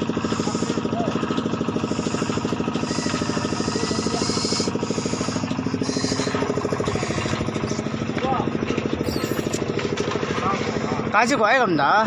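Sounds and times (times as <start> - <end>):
small engine running: 0.0 - 12.0.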